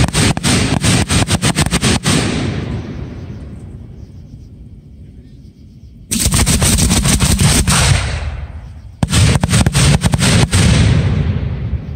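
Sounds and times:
fireworks bangs: 0.0s - 3.8s, 6.1s - 11.9s
low rumbling echo: 2.0s - 5.4s, 6.1s - 11.9s.

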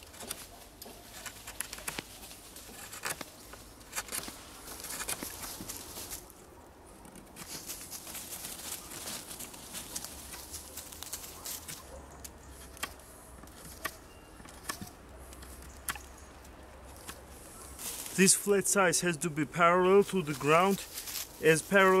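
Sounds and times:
knife scraping wood: 0.0s - 5.8s, 12.5s - 16.0s.

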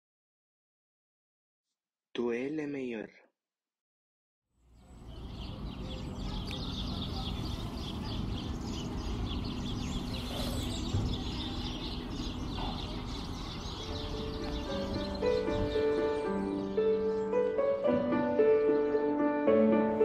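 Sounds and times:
birds chirping: 4.6s - 20.0s.

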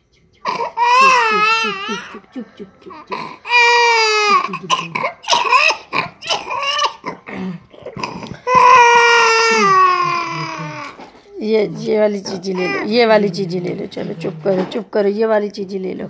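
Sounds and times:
toddler crying: 0.6s - 2.2s, 2.9s - 4.4s, 8.4s - 11.0s, 12.4s - 13.0s.

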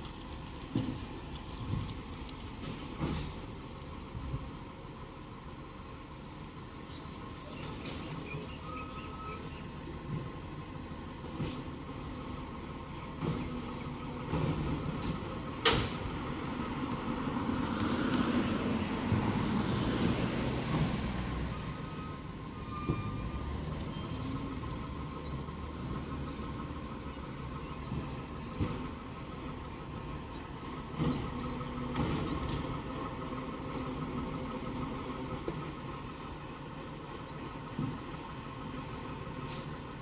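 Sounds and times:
garbage truck engine running: 0.0s - 40.0s.

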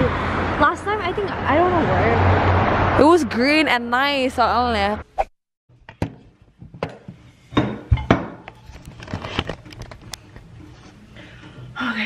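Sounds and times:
camera handling knocks and rustles: 7.9s - 10.4s.

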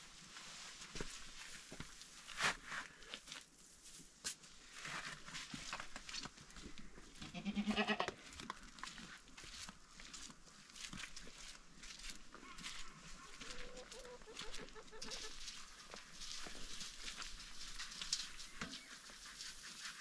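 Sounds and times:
livestock bleat: 7.2s - 8.1s
straw rustling in bucket: 8.8s - 20.0s.

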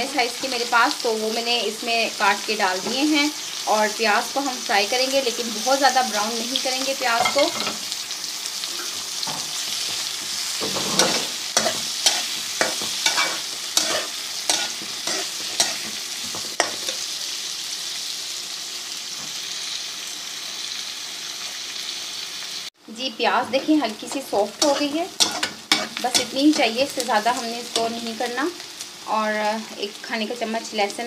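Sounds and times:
onions sizzling in hot fat: 0.0s - 31.0s
spoon scraping pan: 8.8s - 17.0s, 23.4s - 27.0s.

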